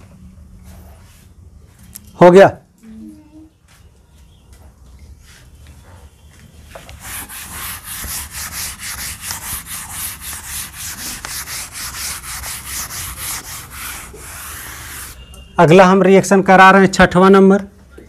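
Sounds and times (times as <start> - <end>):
duster wiping chalkboard: 6.6 - 15.2.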